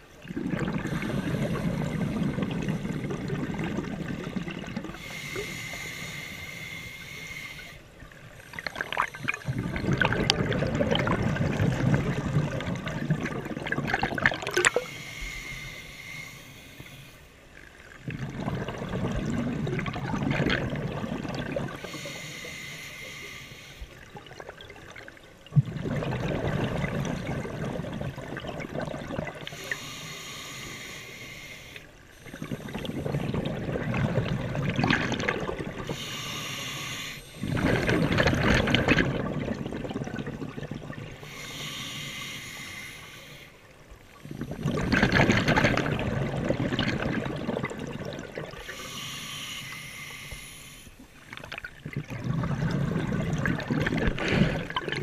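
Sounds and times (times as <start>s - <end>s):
bubbling exhalations underwater: 0.2s - 5.0s, 8.5s - 14.9s, 18.0s - 21.8s, 25.5s - 29.7s, 32.3s - 36.0s, 37.4s - 41.3s, 44.2s - 49.0s, 51.4s - 55.0s
regulator hissing inhalation: 4.9s - 9.9s, 14.6s - 17.3s, 21.8s - 24.0s, 29.5s - 33.2s, 35.8s - 38.0s, 41.2s - 44.6s, 48.6s - 51.0s.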